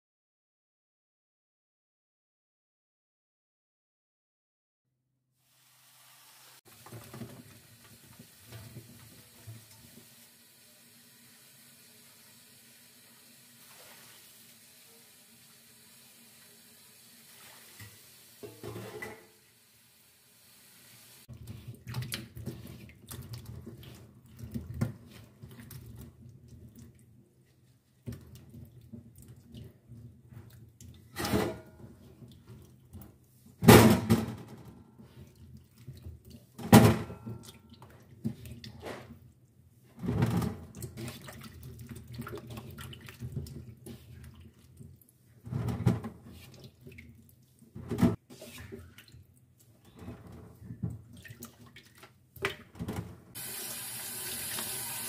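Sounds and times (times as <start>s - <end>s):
tap water running into pot: 5.7s - 19.3s, 53.4s - 55.0s.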